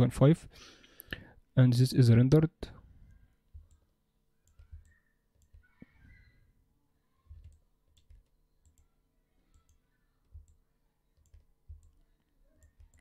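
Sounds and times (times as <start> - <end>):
computer mouse clicks: 4.4 - 5.8, 7.3 - 8.9, 9.5 - 10.6, 11.2 - 13.0.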